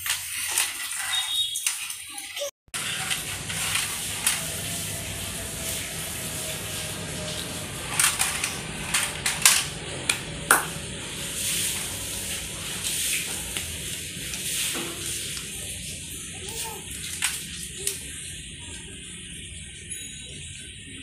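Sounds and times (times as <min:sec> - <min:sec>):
plastic toys clattering on tiles: 0:00.0 - 0:04.6, 0:07.9 - 0:09.8, 0:16.5 - 0:18.0
steady hiss: 0:02.8 - 0:08.0.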